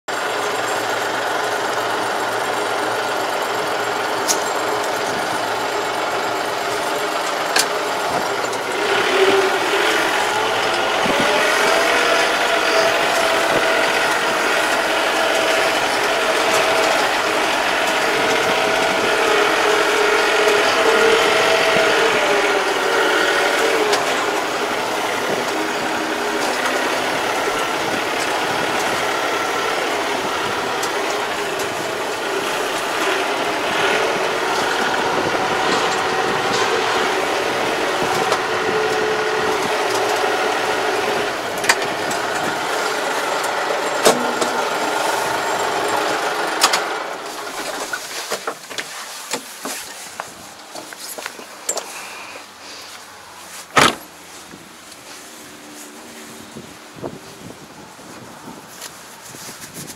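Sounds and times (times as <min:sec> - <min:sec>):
tractor diesel engine running: 0:00.0 - 0:59.9
mechanical rattle: 0:00.2 - 0:48.9.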